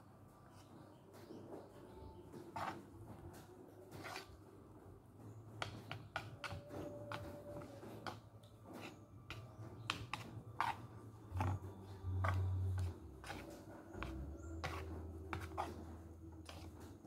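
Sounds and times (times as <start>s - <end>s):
chopsticks scraping metal pot: 8.8s - 17.0s.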